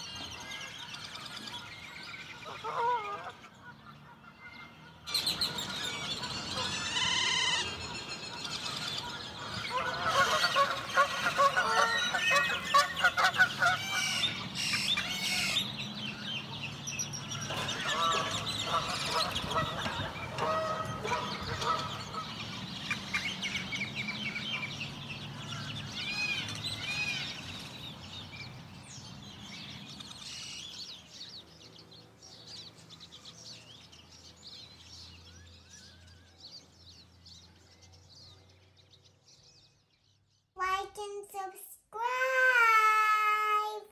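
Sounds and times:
bird calls and chirps: 0.0 - 41.5
outdoor background noise: 0.0 - 43.9
small child's voice: 40.6 - 43.9.

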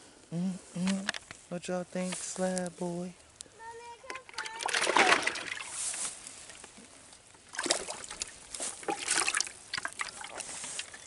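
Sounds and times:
water sloshing in bucket: 4.1 - 6.0, 7.4 - 11.0
fish splashing into water: 4.2 - 5.9, 7.5 - 10.5.

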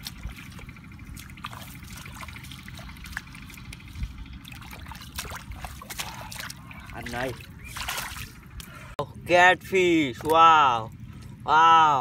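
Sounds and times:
hands splashing in muddy water: 0.0 - 8.4
steady low noise: 0.0 - 12.0.

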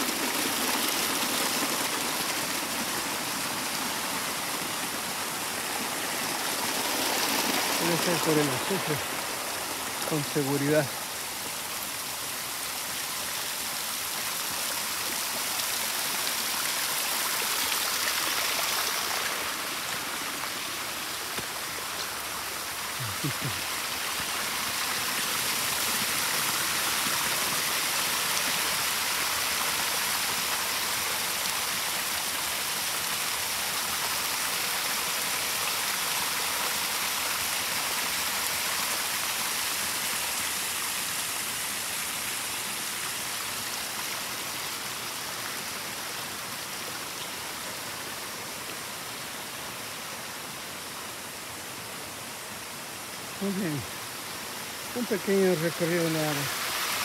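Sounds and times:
small waterfall splashing: 0.0 - 57.0.

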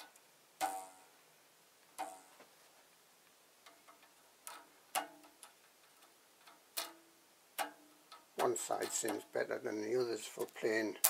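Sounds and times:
rubber belts plucked twanging: 0.0 - 1.2, 2.0 - 2.5, 3.6 - 9.4.

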